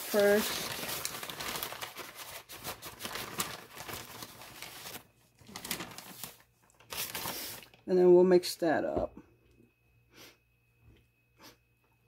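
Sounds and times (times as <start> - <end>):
plastic bag crinkling: 0.0 - 7.9.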